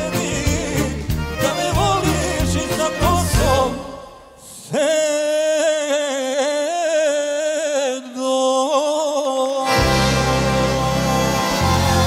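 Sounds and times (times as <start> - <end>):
band with bass and drums: 0.0 - 3.8, 9.7 - 12.0
man singing with vibrato: 0.0 - 12.0.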